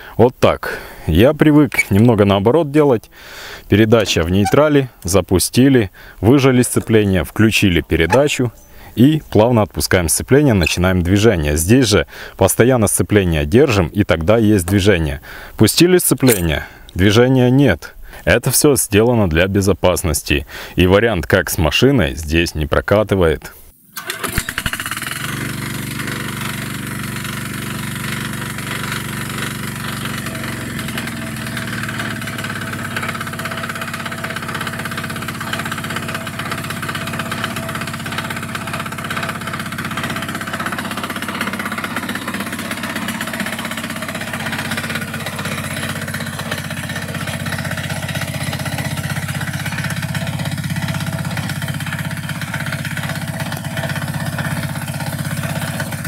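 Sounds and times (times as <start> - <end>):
diesel engine pull-started: 0.0 - 2.4, 3.2 - 12.3, 16.2 - 16.8, 23.9 - 56.0.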